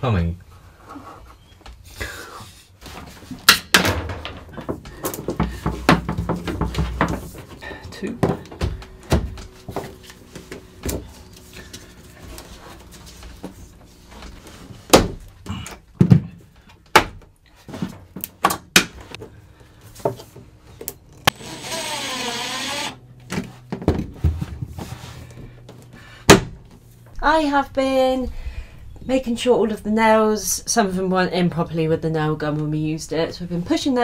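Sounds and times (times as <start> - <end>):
cordless drill running: 21.3 - 23.0.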